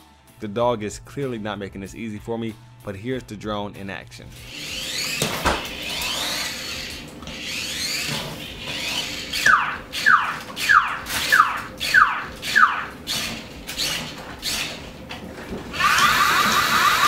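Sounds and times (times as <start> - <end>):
minidrone whining: 4.2 - 17.0.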